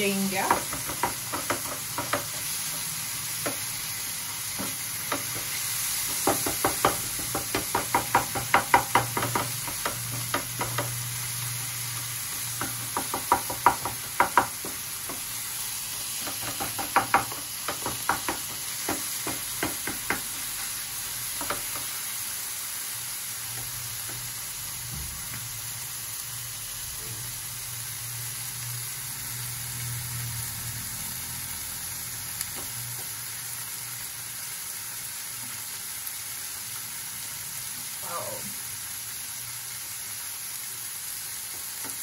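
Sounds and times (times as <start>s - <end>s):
vegetables sizzling in a frying pan: 0.0s - 42.0s
wooden spatula knocking pan: 0.2s - 3.7s, 4.5s - 11.1s, 12.4s - 15.3s, 16.2s - 22.0s.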